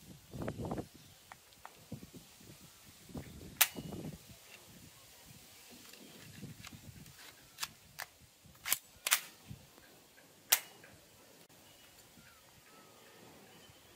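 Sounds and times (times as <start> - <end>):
toy shotgun snaps and clicks: 3.6 - 3.9, 7.6 - 9.4, 10.5 - 10.9.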